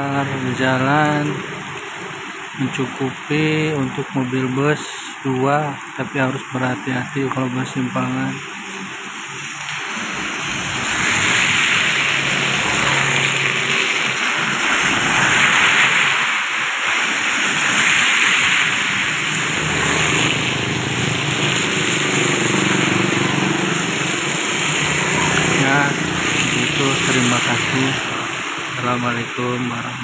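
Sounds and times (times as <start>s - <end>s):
heavy rain on road: 0.0s - 30.0s
motorcycle engines: 8.0s - 30.0s.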